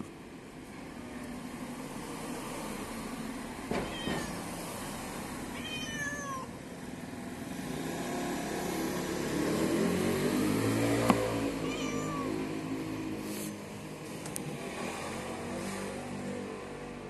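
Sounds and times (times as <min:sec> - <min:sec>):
cat meowing: 0:03.8 - 0:04.5, 0:05.5 - 0:06.6, 0:11.5 - 0:12.6.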